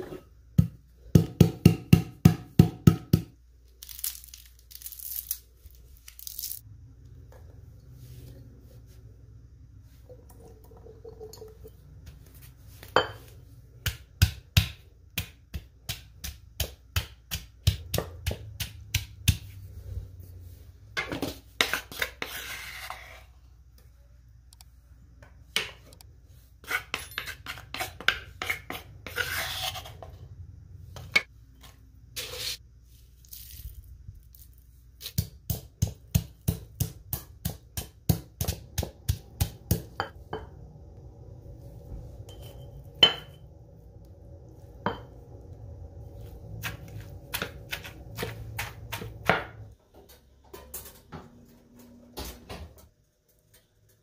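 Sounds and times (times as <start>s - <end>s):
stone pestle knocking in mortar: 0.6s - 3.3s
pestle scraping mortar: 21.0s - 23.2s, 26.6s - 30.1s, 46.5s - 49.7s.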